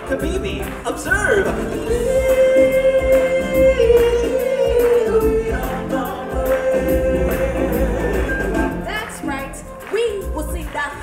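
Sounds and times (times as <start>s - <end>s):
choir singing in harmony: 1.8s - 8.9s.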